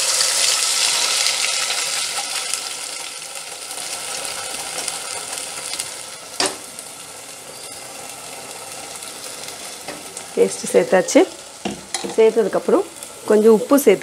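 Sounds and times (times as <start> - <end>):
paste sizzling in hot oil: 0.0 - 14.0.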